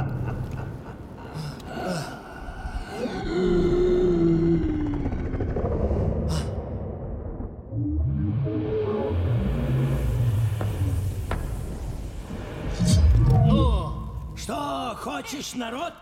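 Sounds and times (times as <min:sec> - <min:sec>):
low rumble: 0:02.5 - 0:14.5
deep monstrous roar: 0:03.0 - 0:10.4.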